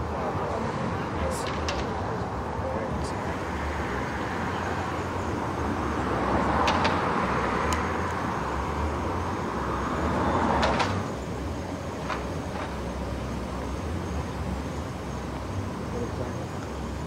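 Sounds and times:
traffic engine hum: 0:00.0 - 0:17.0.

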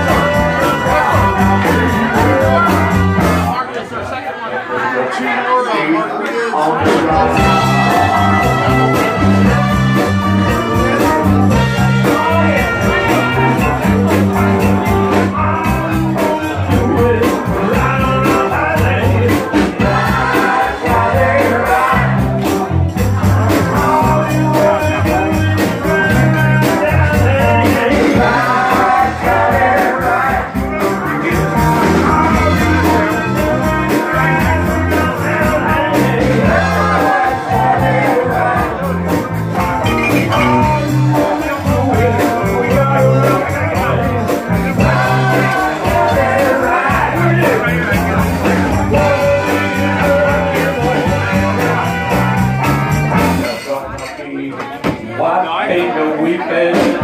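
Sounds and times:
loud music with sung vocal: 0:00.0 - 0:04.2, 0:04.8 - 0:57.0.

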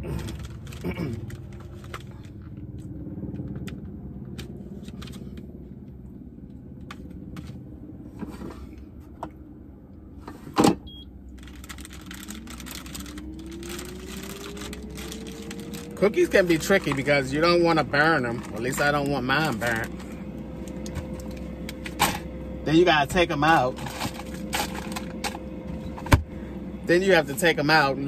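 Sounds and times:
low hum: 0:00.0 - 0:28.0
fan whine rising in pitch: 0:01.6 - 0:10.2, 0:10.9 - 0:28.0.

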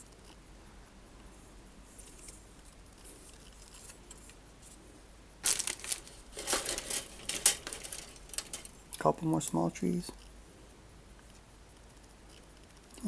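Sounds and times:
plastic parts rustling and clattering: 0:05.4 - 0:08.8.

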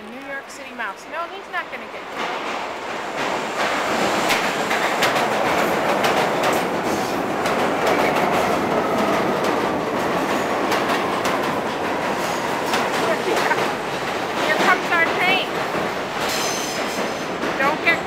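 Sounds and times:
subway train rumbling on rails: 0:00.0 - 0:18.0.

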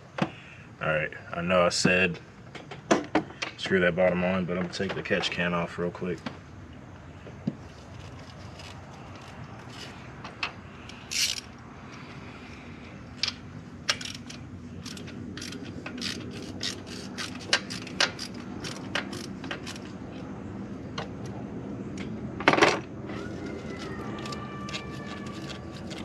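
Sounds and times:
socket ratchet clicking: 0:13.2 - 0:19.9.

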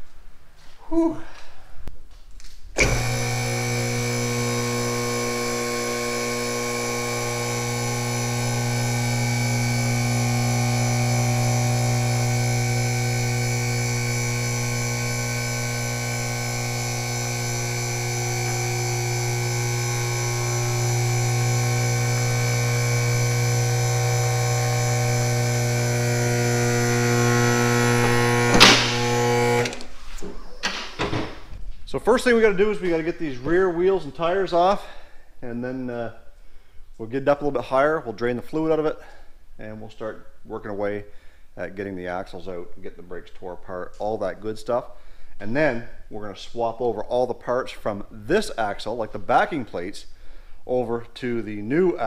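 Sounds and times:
hydraulic pump motor humming: 0:02.8 - 0:30.0
sharp clack of car lift: 0:28.0 - 0:29.0.

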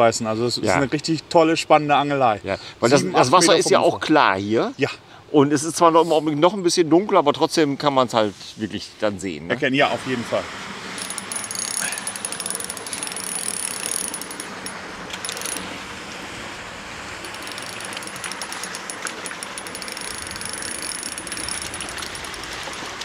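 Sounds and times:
fishing reel ratcheting: 0:11.0 - 0:15.6, 0:17.2 - 0:22.9.

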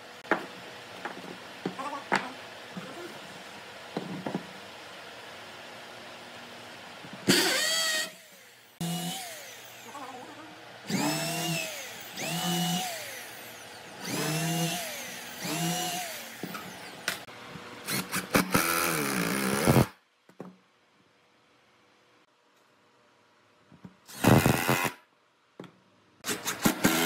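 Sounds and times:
electric drill boring into wood: 0:07.3 - 0:10.0, 0:10.9 - 0:17.2, 0:17.9 - 0:19.9, 0:24.1 - 0:25.0, 0:26.3 - 0:27.0
cordless drill-driver running: 0:10.9 - 0:17.0.

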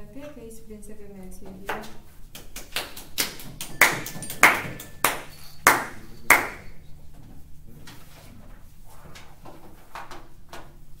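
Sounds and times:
sharp ringing strikes: 0:03.6 - 0:06.8.

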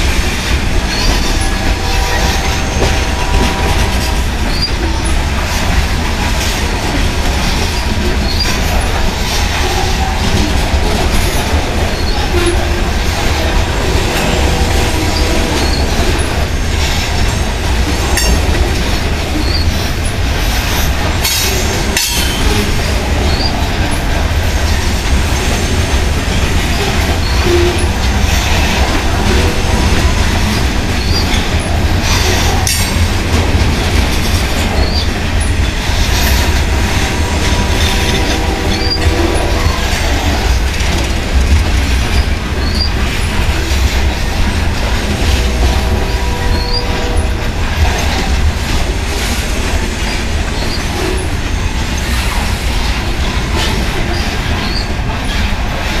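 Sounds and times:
rail joint clicks: 0:00.0 - 0:56.0
train wheels rumbling on rail: 0:00.0 - 0:56.0
wheel squeals: 0:14.0 - 0:17.4, 0:34.7 - 0:35.6, 0:42.1 - 0:43.1, 0:54.0 - 0:55.5.

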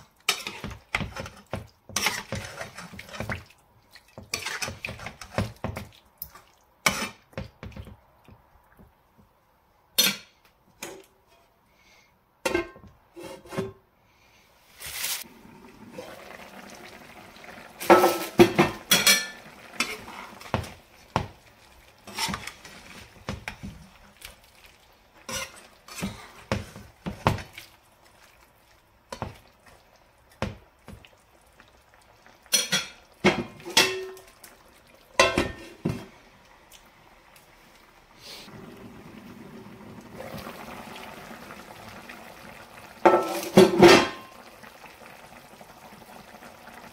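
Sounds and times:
gravy sizzling: 0:00.0 - 0:08.9, 0:14.6 - 0:46.9
metal spoon scraping a frying pan: 0:00.3 - 0:03.2, 0:04.3 - 0:05.4, 0:22.0 - 0:22.9, 0:25.2 - 0:26.5.

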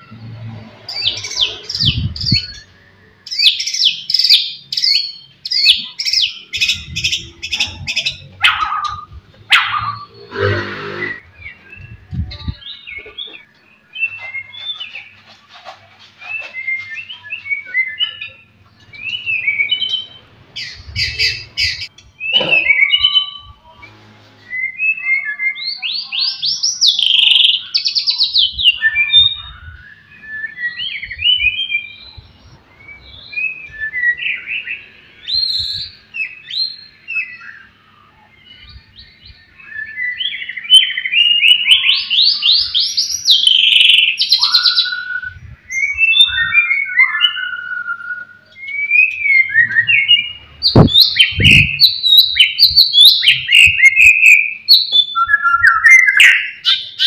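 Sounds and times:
bird singing whistles and trills: 0:16.2 - 0:23.6, 0:24.5 - 0:57.0.

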